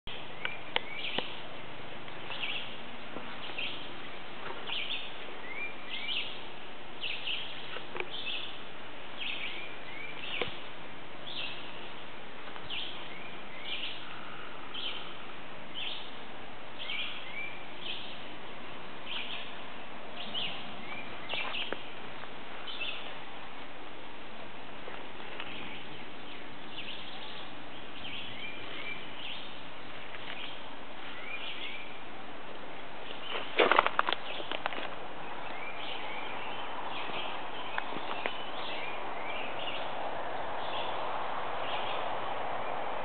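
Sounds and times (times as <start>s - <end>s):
steady outdoor hiss: 0.0s - 43.0s
bird chirping: 0.1s - 1.5s, 2.1s - 8.6s, 9.2s - 10.6s, 11.2s - 12.0s, 12.6s - 16.2s, 16.8s - 18.3s, 19.0s - 19.6s, 20.2s - 23.2s, 25.3s - 32.1s, 33.0s - 42.8s.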